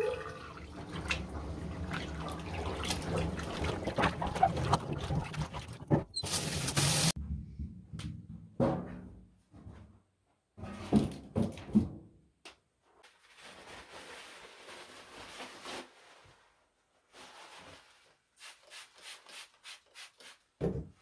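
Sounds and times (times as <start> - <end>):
plastic bag rustling: 13.1 - 18.3.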